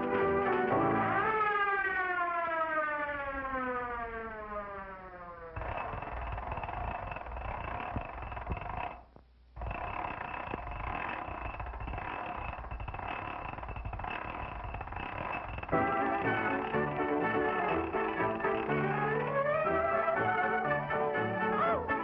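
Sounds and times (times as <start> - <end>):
falling siren-like tone: 0.0 - 7.2, 15.4 - 22.0
winch mechanical rattle: 5.6 - 22.0.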